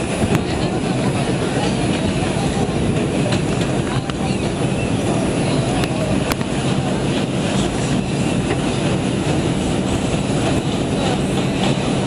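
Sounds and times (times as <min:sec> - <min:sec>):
subway train rumbling in tunnel: 0:00.0 - 0:12.0.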